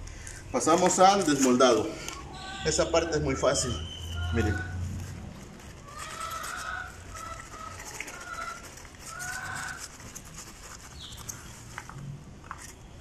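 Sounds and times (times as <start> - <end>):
short level-pitched animal calls: 4.2 - 4.8.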